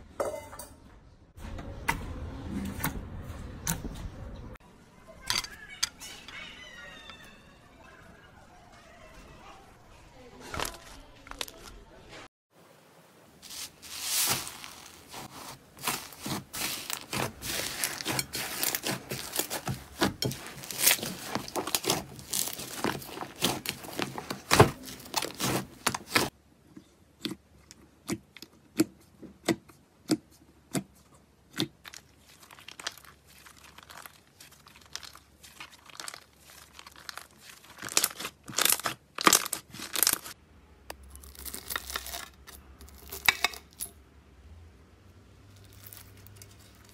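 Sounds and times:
slime squishing crackles and pops: 15.8s - 26.3s.

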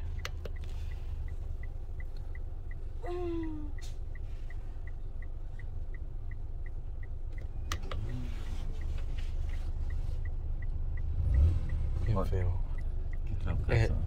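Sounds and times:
high ticking: 0.0s - 8.2s
vehicle rumbling on the move: 0.0s - 14.0s.

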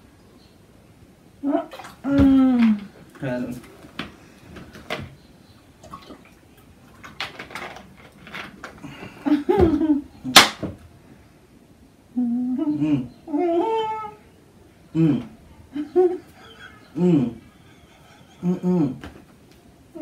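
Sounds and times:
muffled humming with mouths full: 8.1s - 20.0s.

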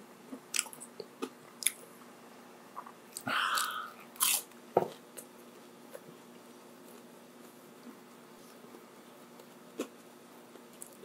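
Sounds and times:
person chewing crunchy food: 0.4s - 1.9s, 2.8s - 5.3s.

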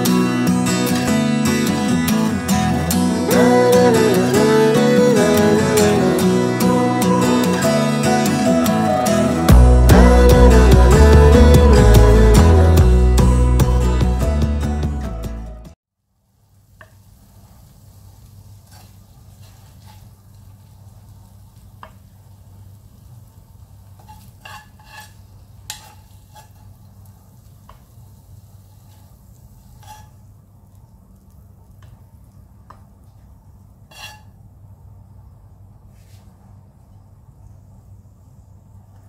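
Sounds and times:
music: 0.0s - 15.8s.

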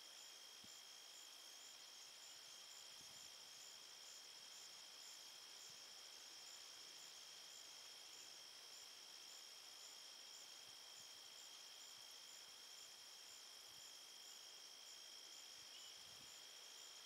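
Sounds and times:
high insect chirp: 0.0s - 17.0s.

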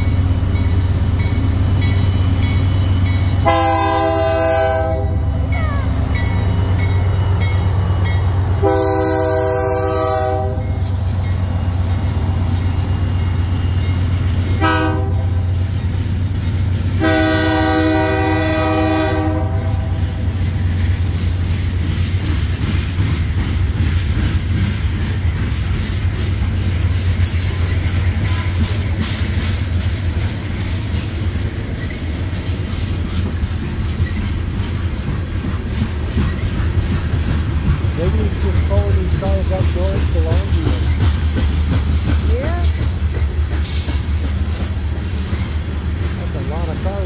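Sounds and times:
locomotive engine rumble: 0.0s - 47.0s
train wheels clicking over rail joints: 0.0s - 47.0s
locomotive air horn: 3.4s - 5.3s, 8.6s - 10.8s, 14.6s - 15.5s, 17.0s - 20.0s.

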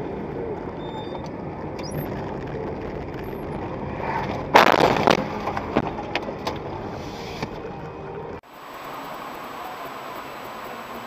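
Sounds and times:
road noise: 0.0s - 11.0s
vehicles crashing: 1.5s - 11.0s.

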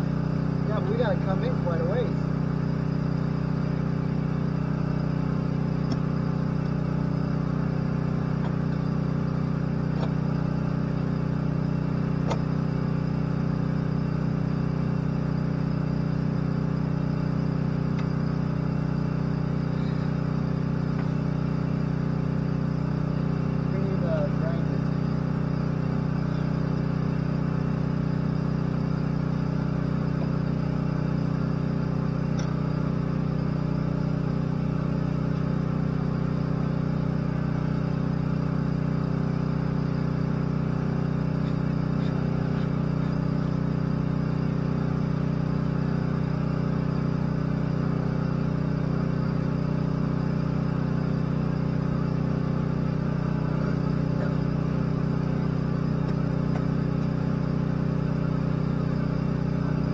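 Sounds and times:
excavator engine running: 0.0s - 59.9s.

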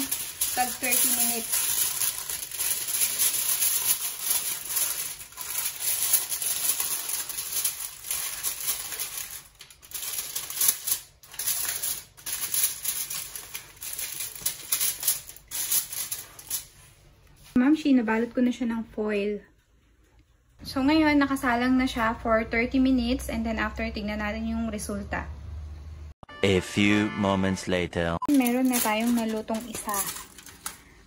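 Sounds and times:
aluminium foil crinkling: 0.0s - 17.6s, 28.3s - 31.0s.

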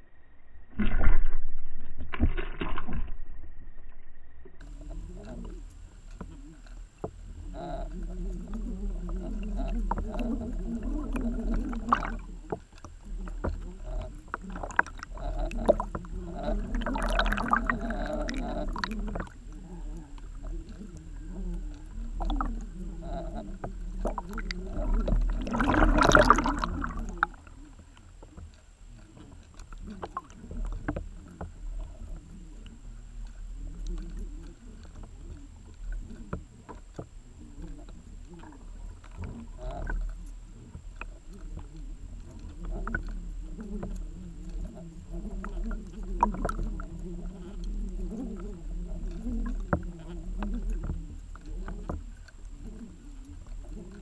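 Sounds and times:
underwater rumble of moving water: 0.0s - 54.0s
underwater knocks and clicks: 0.7s - 3.3s, 4.6s - 54.0s
rushing water surges: 24.1s - 27.3s.

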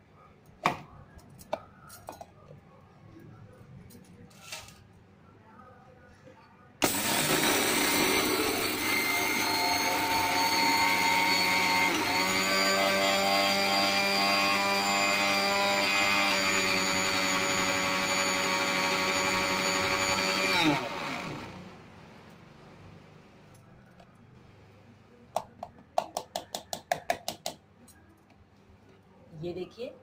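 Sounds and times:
mixer grinder running: 6.8s - 21.9s.

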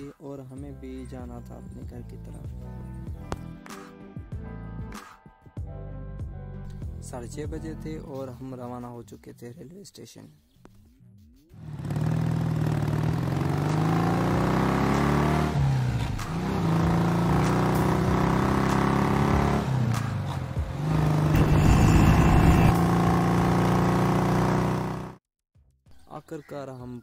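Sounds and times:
motorcycle engine running: 11.6s - 15.2s, 16.1s - 25.2s.

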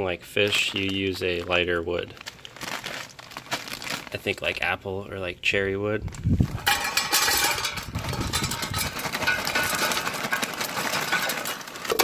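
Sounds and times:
wood chips clattering on metal: 6.5s - 12.0s.

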